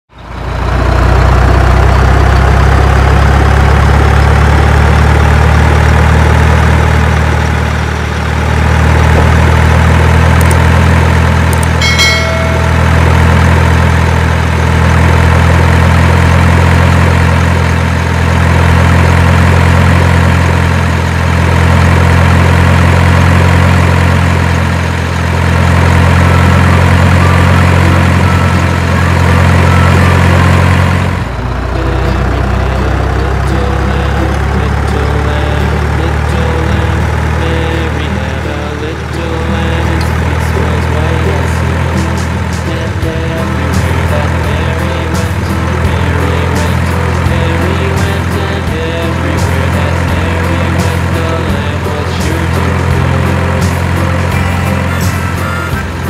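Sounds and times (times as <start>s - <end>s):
truck engine idling: 0.0s - 56.0s
short high tone: 11.6s - 14.2s, 26.2s - 56.0s.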